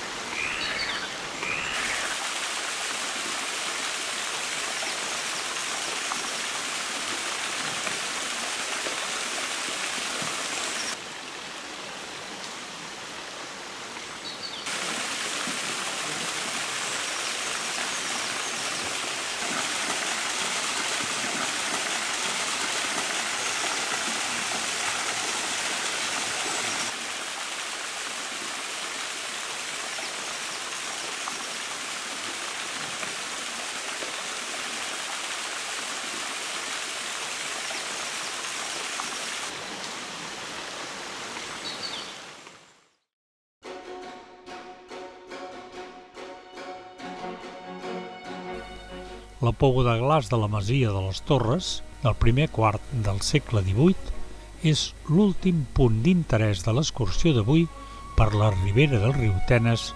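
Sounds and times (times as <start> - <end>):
waterfall splashing into pool: 0.0 - 12.0, 13.9 - 42.6.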